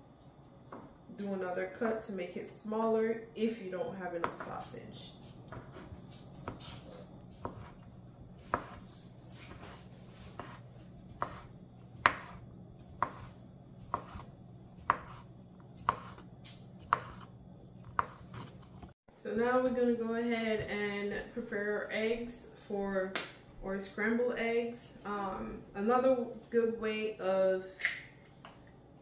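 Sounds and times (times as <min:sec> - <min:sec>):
knife chopping on cutting board: 0:05.5 - 0:18.9.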